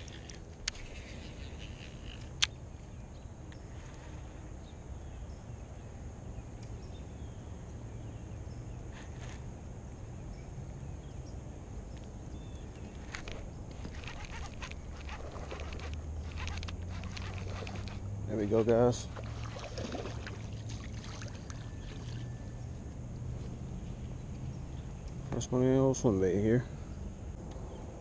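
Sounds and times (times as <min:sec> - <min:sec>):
fishing reel clicks: 0:00.0 - 0:02.6, 0:13.9 - 0:18.0
low outdoor rumble: 0:00.0 - 0:28.0.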